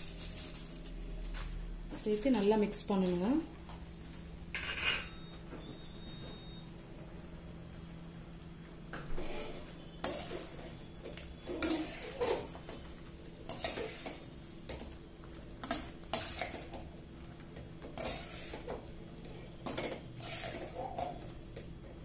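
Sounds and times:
metal spoon scraping pan: 0:09.2 - 0:10.7, 0:11.4 - 0:12.8, 0:13.5 - 0:14.3, 0:15.6 - 0:16.8, 0:17.8 - 0:21.2.

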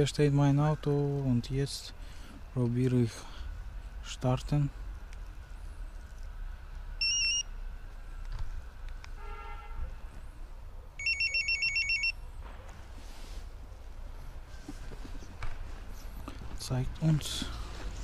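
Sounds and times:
car alarm warbling beeps: 0:07.0 - 0:07.5, 0:11.0 - 0:12.2.

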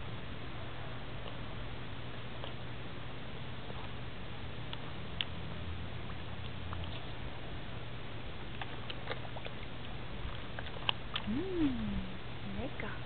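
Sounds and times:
steady background hiss: 0:11.0 - 0:13.0.

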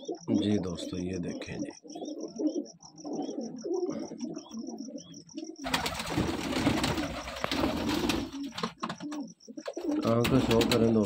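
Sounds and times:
pigeons cooing: 0:00.0 - 0:11.0
loud rustling of bird handled: 0:05.6 - 0:08.8.

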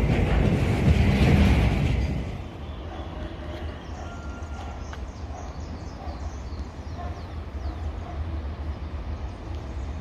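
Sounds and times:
freight locomotive rumble: 0:00.0 - 0:10.0
birds chirping: 0:02.5 - 0:10.0.

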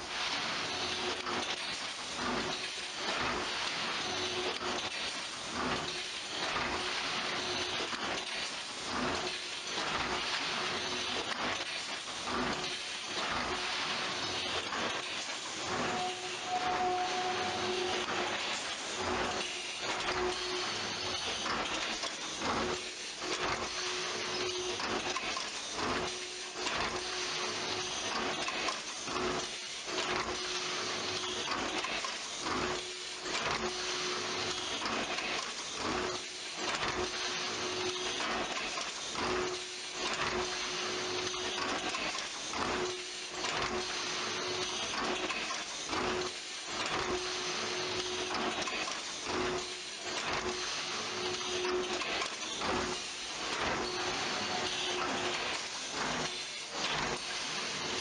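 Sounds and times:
steady mechanical whir: 0:00.0 - 0:58.0
machine hum cutting in and out: 0:15.6 - 0:21.8.

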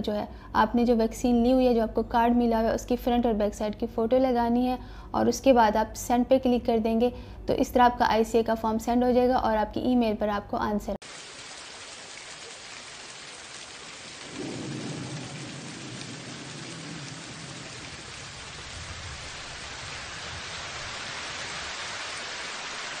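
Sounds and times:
rain hissing: 0:11.0 - 0:23.0
thunder rumbling: 0:14.0 - 0:21.7.

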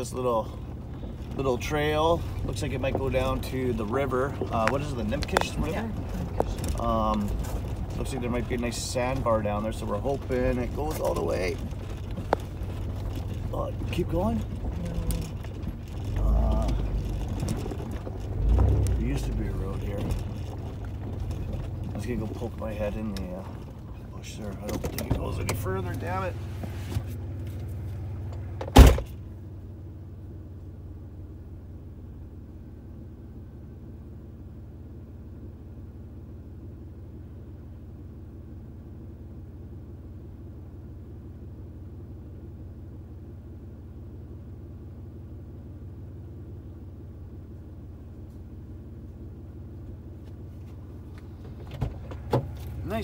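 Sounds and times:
car engine idling: 0:00.0 - 0:53.0
sharp thump: 0:28.6 - 0:29.2.

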